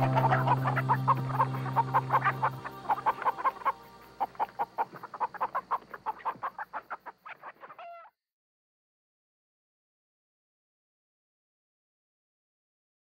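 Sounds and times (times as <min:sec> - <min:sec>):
chicken clucking: 0:00.0 - 0:08.1.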